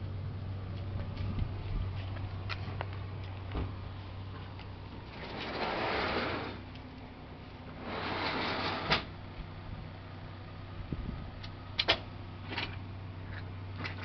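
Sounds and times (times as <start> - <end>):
low steady hum: 0.0 - 14.0
footsteps: 0.7 - 5.1.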